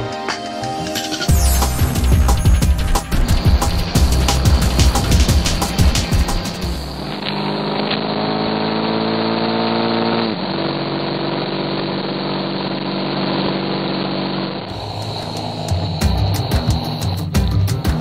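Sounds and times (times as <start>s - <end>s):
motorcycle engine accelerating: 1.3s - 18.0s
wind and road noise: 3.1s - 17.2s.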